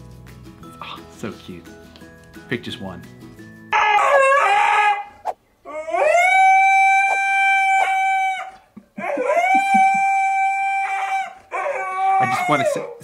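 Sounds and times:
husky howling: 3.7 - 13.0.

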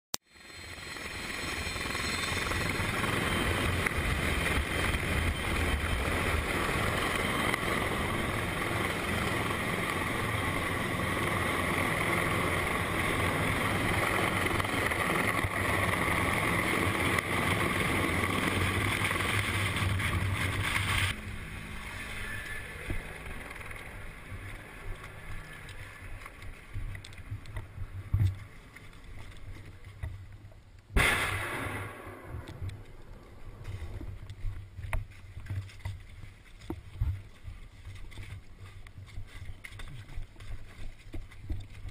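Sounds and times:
helicopter rotor and engine: 0.3 - 28.4.

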